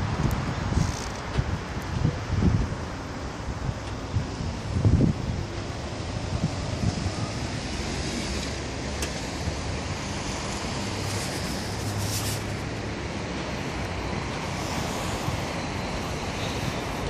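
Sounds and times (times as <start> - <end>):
distant city traffic hum: 0.0 - 17.0
wind buffeting microphone: 0.0 - 17.0
short hiss: 10.6 - 12.6.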